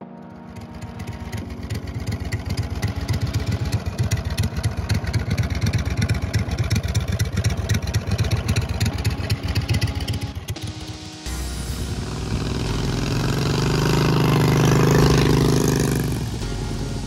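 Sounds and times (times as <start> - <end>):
motorized bicycle engine running: 0.4 - 16.7.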